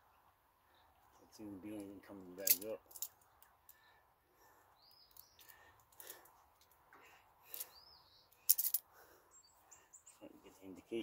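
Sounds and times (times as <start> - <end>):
faint bird chirps: 3.2 - 5.8, 7.0 - 10.8.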